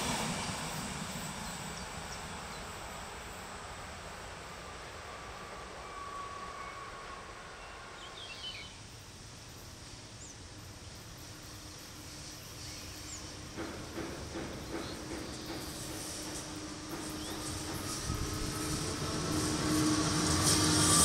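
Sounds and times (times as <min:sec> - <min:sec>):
electric locomotive hum: 0:00.0 - 0:21.0
wheels clacking over rail joints: 0:13.3 - 0:21.0.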